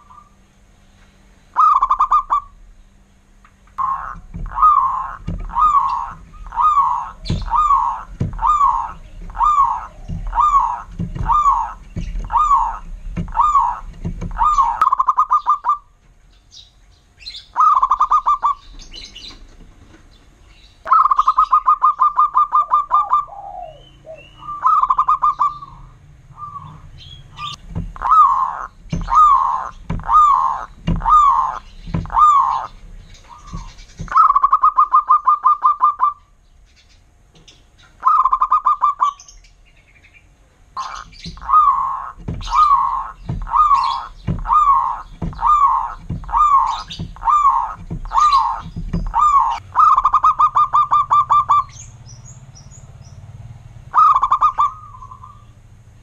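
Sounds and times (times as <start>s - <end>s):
dove cooing: 1.5s - 2.6s, 3.8s - 16.0s, 17.4s - 19.9s, 20.8s - 36.4s, 38.0s - 39.3s, 40.7s - 52.0s, 53.9s - 55.6s
rapid rattling dove notes: 3.8s - 16.3s, 27.2s - 36.2s, 40.8s - 53.3s.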